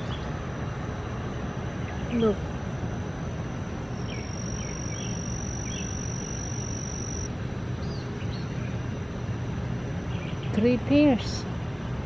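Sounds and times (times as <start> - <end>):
insect high trill: 0.0 - 7.3
low outdoor rumble: 0.0 - 12.0.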